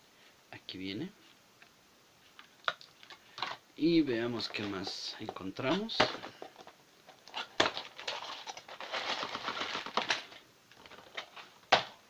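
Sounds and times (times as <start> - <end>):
plastic bags crinkling: 4.3 - 12.0.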